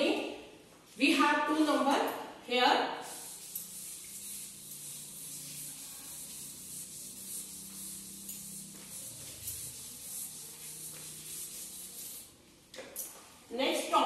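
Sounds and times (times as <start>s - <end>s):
chalkboard being wiped: 3.0s - 12.5s.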